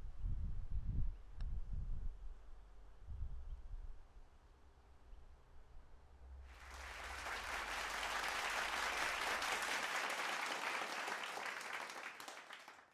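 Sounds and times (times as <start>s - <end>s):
crowd applauding: 6.5s - 12.9s.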